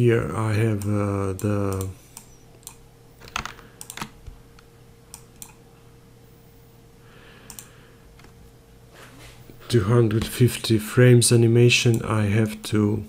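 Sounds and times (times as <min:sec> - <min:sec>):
faint electrical hum: 0:00.0 - 0:13.0
computer keyboard clicks: 0:00.8 - 0:04.1.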